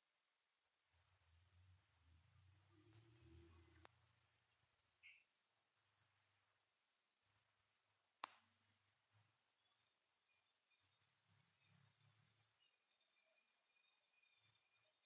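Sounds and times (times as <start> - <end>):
faint high clicks: 2.7 - 5.5, 11.0 - 13.6.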